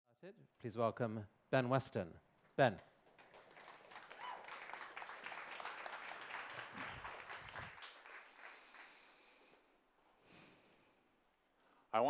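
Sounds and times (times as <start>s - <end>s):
audience applauding: 3.1s - 9.3s.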